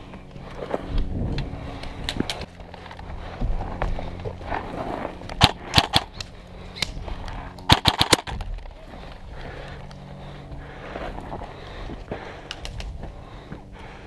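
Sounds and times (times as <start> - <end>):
airsoft rifle shots: 5.4 - 6.2, 7.7 - 8.4.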